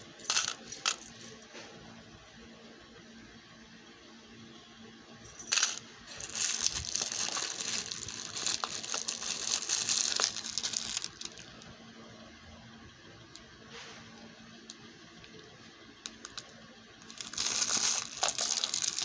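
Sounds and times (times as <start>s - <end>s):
metal charms clinking: 5.4s - 11.3s, 17.1s - 19.0s.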